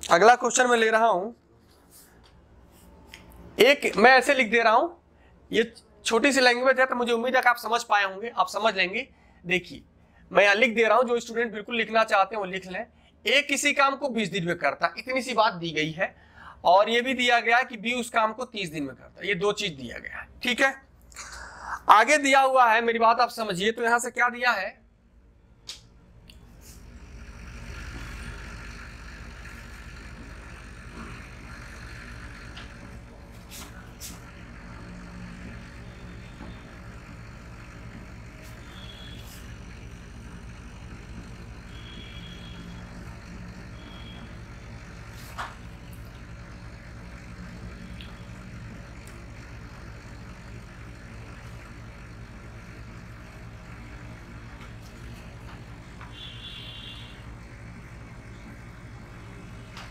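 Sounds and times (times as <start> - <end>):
low background hum: 0.0 - 59.9
low rumble with hiss: 24.8 - 59.9.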